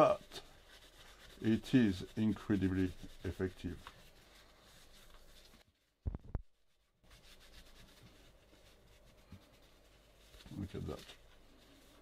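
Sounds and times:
paper towel scrubbing: 0.0 - 6.0, 6.6 - 12.0
short low thumps: 6.0 - 6.5.

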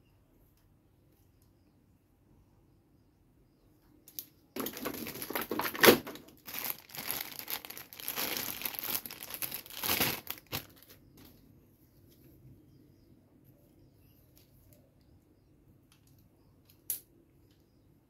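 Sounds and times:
sharp plastic crackle: 4.1 - 11.4
plastic bag crinkling: 4.6 - 11.0.

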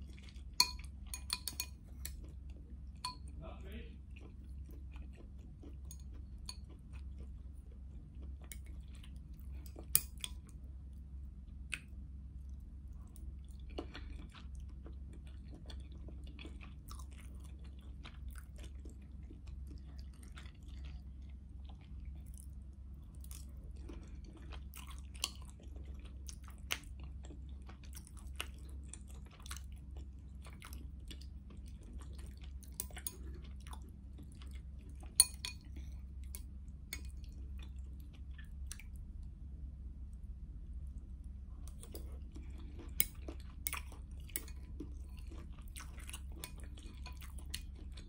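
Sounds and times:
person chewing: 0.0 - 3.4, 4.0 - 10.6, 11.5 - 39.3, 40.8 - 48.0
low hum: 31.7 - 48.0.

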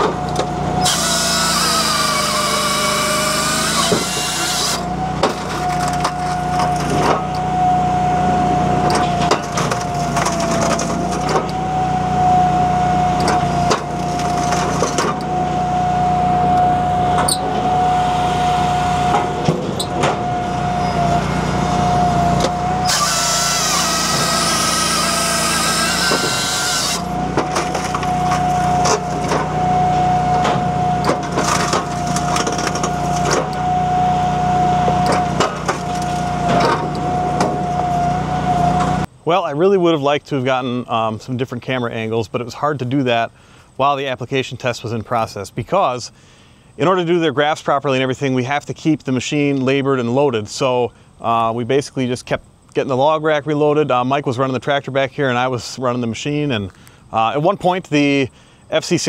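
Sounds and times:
engine hum and whine: 0.0 - 59.0
saw cutting through log: 0.6 - 7.0, 21.0 - 29.3
wood cracking and splintering: 0.8 - 7.1, 9.4 - 11.4, 22.9 - 29.4, 31.1 - 33.5, 35.1 - 36.9.

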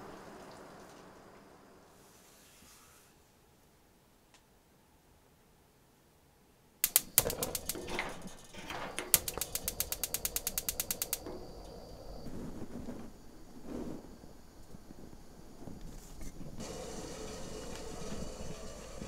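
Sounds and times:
ratcheting clicks: 6.8 - 11.3
blind rustling: 6.8 - 14.1
window blind clattering: 6.9 - 11.5.

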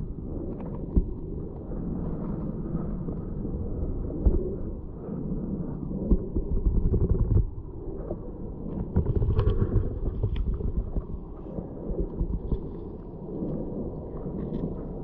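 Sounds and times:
muffled underwater water rumble: 0.0 - 15.0
clicks and crackles: 8.7 - 13.6.

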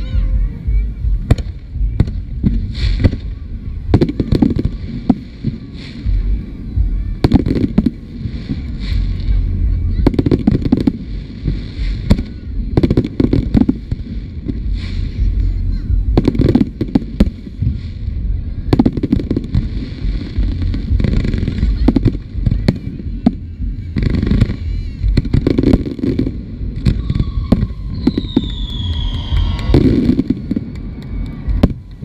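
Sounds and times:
low rumble: 0.0 - 32.0
firework shells bursting: 24.0 - 32.0
falling firework whistle: 26.8 - 32.0.

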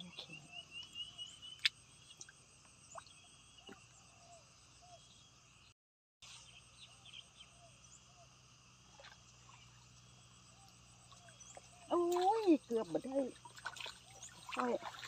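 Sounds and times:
insects chirring: 0.0 - 5.7, 6.3 - 15.0.

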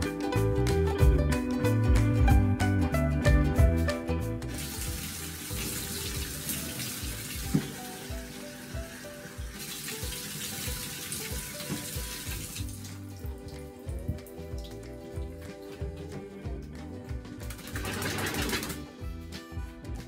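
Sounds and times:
water running into bathtub: 4.5 - 16.0, 17.4 - 18.9.

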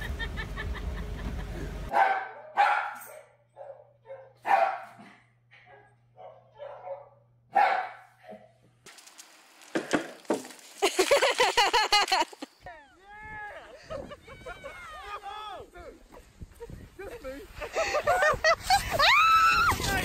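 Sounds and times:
dog barking: 1.9 - 5.0, 5.7 - 8.5.

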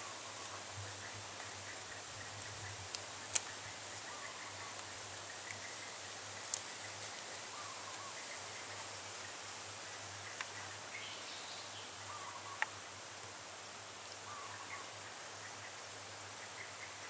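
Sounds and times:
faint bird chirps: 0.0 - 9.4, 10.1 - 12.8, 14.2 - 17.0
steady high hiss: 0.0 - 17.0
small sharp clicks: 2.4 - 3.6, 6.4 - 7.1.

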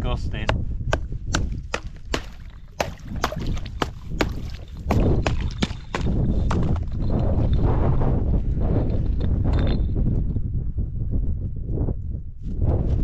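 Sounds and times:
wind rumble on microphone: 0.0 - 13.0
water sloshing: 1.4 - 6.9.

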